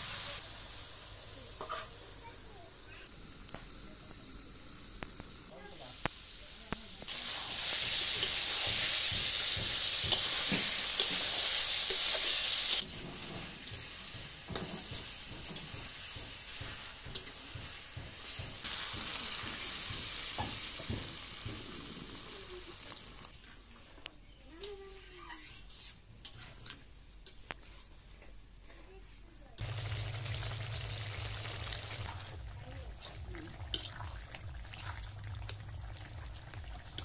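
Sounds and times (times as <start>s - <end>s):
fish sizzling in hot oil: 0.0s - 23.3s, 29.6s - 37.0s
spatula scraping a pan: 1.6s - 2.0s, 24.9s - 27.9s.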